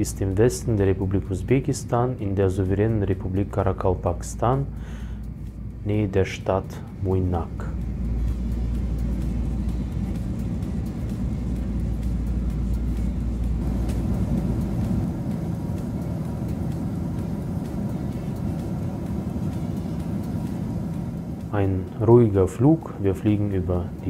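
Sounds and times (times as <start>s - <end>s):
jet airliner cabin roar: 6.8s - 24.0s.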